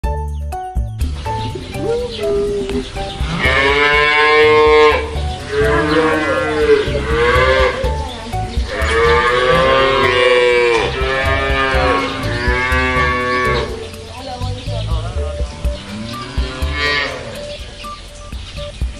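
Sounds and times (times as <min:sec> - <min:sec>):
young cattle mooing: 0:01.8 - 0:13.9, 0:15.8 - 0:17.5.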